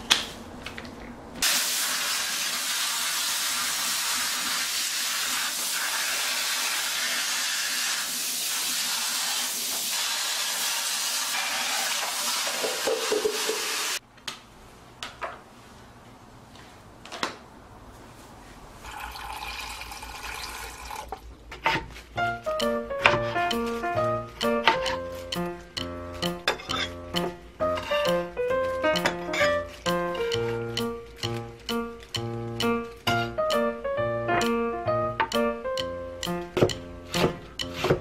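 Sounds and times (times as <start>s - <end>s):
water spraying on plastic: 1.4s - 14.0s
tap running into metal colander: 11.6s - 13.9s.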